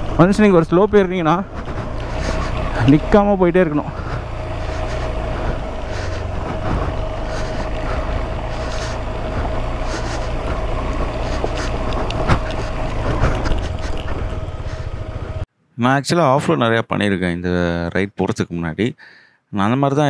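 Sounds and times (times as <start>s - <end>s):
motorcycle engine pulling: 0.0s - 15.4s
rocks knocking and rattling: 1.4s - 3.0s, 3.9s - 15.1s.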